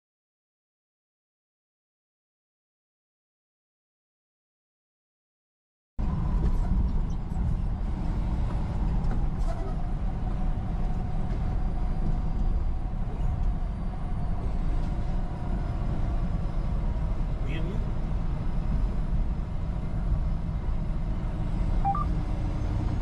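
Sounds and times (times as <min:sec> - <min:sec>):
truck engine and road noise: 0:06.0 - 0:23.0.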